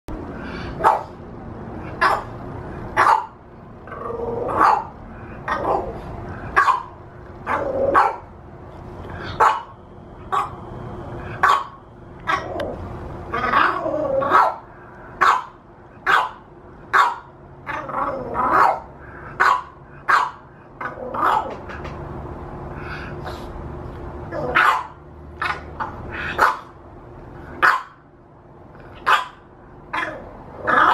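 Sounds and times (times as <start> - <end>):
puppy barking in sharp yaps: 6.6 - 8.2, 15.2 - 17.3, 19.4 - 20.4, 24.5 - 25.8, 27.6 - 28.0, 29.0 - 30.2.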